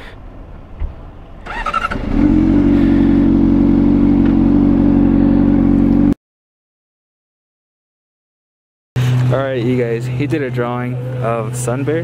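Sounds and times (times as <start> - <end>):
motorcycle engine starting and idling: 1.4 - 6.2.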